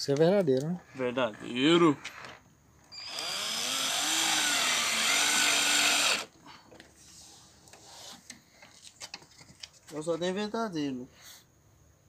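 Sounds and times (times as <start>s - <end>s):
cordless drill motor whining: 2.9s - 6.3s.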